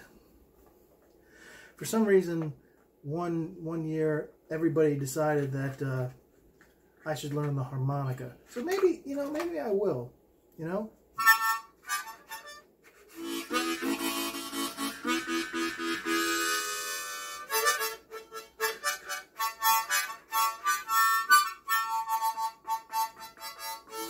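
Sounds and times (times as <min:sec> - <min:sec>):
harmonica chords: 0:11.2 - 0:24.0.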